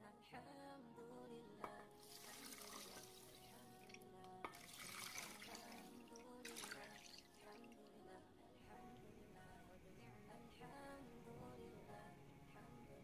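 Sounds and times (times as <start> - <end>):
faint background music: 0.0 - 13.0
water pouring into a steel pot: 2.0 - 7.8.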